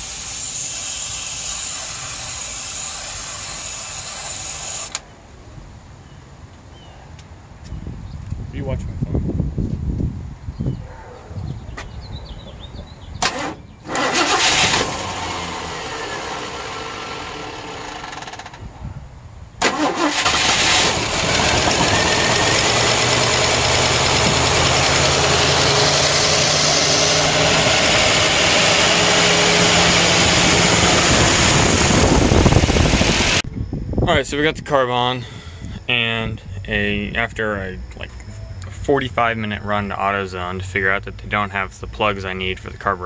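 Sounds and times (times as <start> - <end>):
engine starting and idling: 13.2 - 18.6, 19.6 - 33.4.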